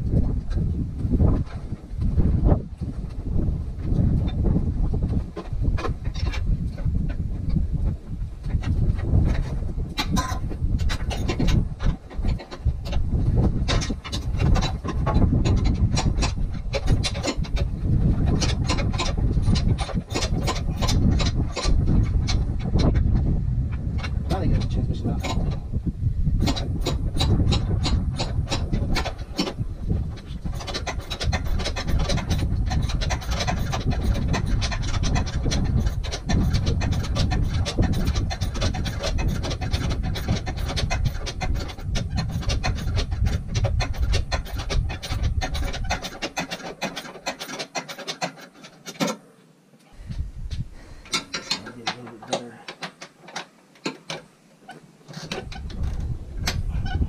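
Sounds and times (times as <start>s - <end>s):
low rumble: 0.0s - 45.9s
tools and parts rubbing: 8.4s - 23.1s, 24.0s - 25.7s, 26.4s - 57.0s
hand ratchet clicking: 30.4s - 49.2s, 51.0s - 54.2s, 55.1s - 57.0s.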